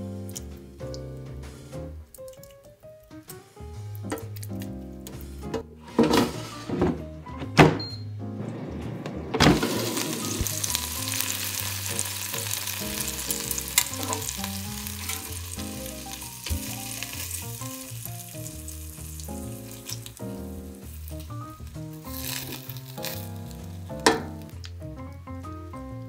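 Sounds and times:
background music: 0.0 - 26.0
air fryer basket thud: 5.5 - 10.8, 23.9 - 24.5
shrimp sizzling: 9.6 - 25.6.

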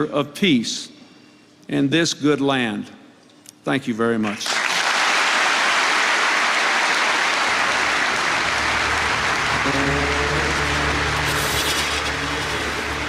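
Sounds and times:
audience applauding: 4.4 - 13.0
music with low held notes: 8.7 - 13.0.

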